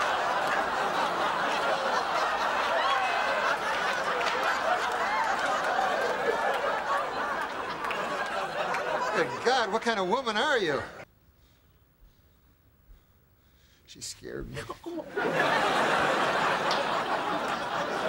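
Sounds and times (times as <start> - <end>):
audience laughing: 0.0 - 11.0, 14.8 - 18.0.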